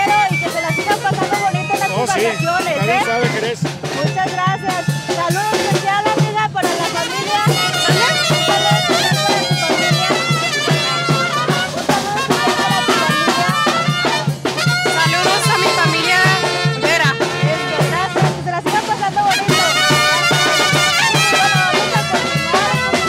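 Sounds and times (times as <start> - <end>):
bass drum beat: 0.0 - 23.0
wind instruments melody: 0.0 - 23.0.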